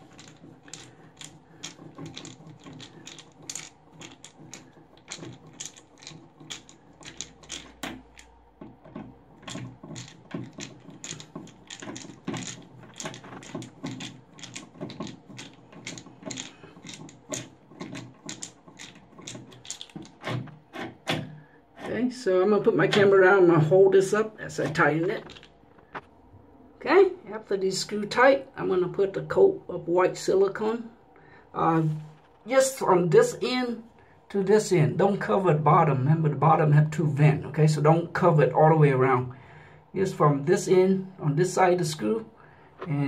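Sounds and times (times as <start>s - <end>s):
screwdriver clicking on screws: 0.0s - 21.2s.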